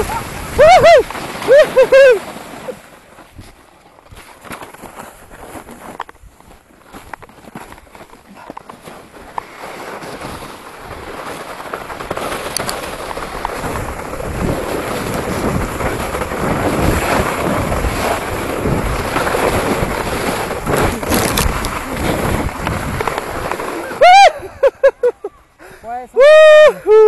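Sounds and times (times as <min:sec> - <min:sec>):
sled scraping on snow: 0:00.0 - 0:26.6
wind over microphone: 0:10.2 - 0:24.6.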